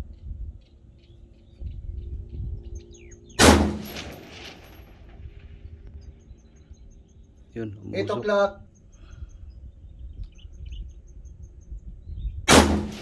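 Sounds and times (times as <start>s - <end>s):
rifle shot with echo: 3.4s - 5.0s, 12.5s - 13.0s
birds chirping faintly: 5.4s - 12.8s.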